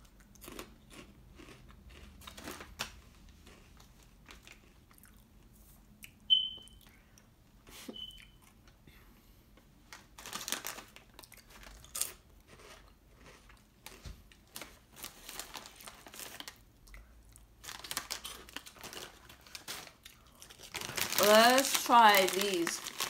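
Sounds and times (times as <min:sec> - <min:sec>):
chips being chewed: 0:00.0 - 0:06.2, 0:10.2 - 0:23.0
chip bag crinkling: 0:00.5 - 0:04.7, 0:09.9 - 0:16.6, 0:17.6 - 0:23.0.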